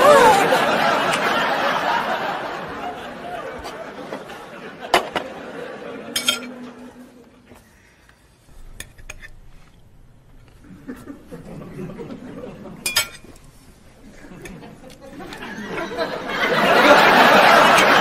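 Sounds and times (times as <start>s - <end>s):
cutlery clinking on plates: 6.0s - 6.8s, 12.8s - 13.5s.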